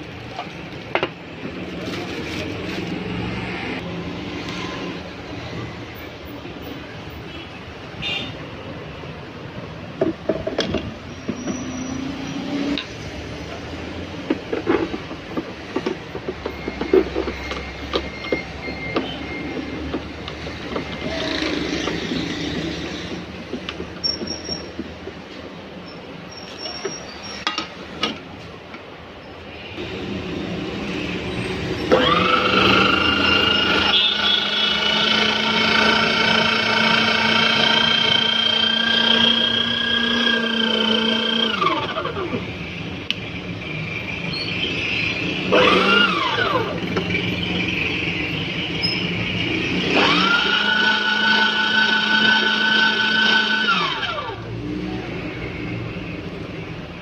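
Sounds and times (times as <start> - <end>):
meat grinder motor whining: 31.9 - 42.4, 45.5 - 47.2, 49.7 - 54.6.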